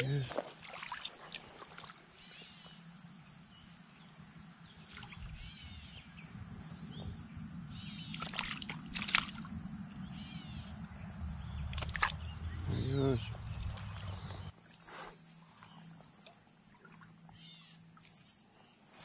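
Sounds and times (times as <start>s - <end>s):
water splashes: 0.0s - 2.0s, 4.8s - 5.5s, 8.0s - 9.6s, 11.6s - 14.5s, 16.7s - 17.2s
stream water sloshing: 0.0s - 2.3s, 4.8s - 5.5s, 7.8s - 9.7s, 11.4s - 18.3s
insect hiss: 0.0s - 19.0s
birds calling: 3.5s - 15.0s.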